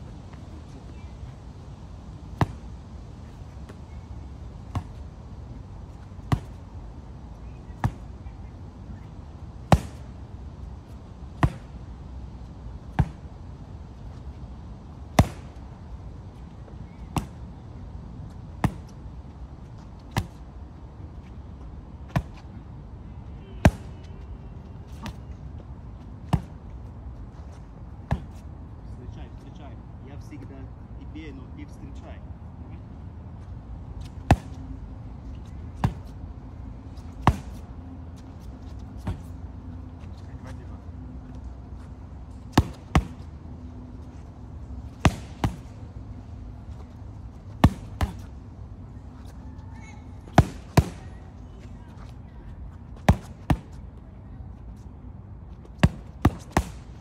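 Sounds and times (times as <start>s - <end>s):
low outdoor rumble: 0.0s - 57.0s
boxing gloves hitting focus mitts: 6.2s - 6.7s, 9.6s - 10.1s, 11.4s - 11.8s, 12.9s - 13.3s, 15.1s - 15.6s, 34.0s - 34.6s, 37.0s - 37.7s, 42.4s - 43.3s, 44.9s - 45.8s, 47.6s - 48.3s, 50.3s - 51.1s, 53.0s - 53.7s, 55.6s - 57.0s.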